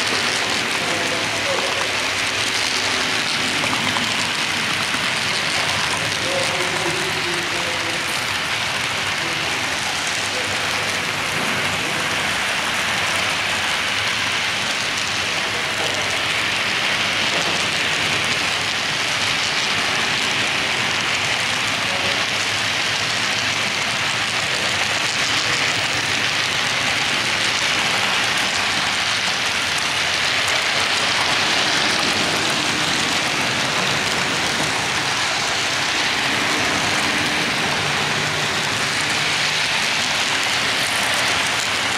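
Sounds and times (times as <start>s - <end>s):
model train wheels on rails: 0.0s - 41.9s.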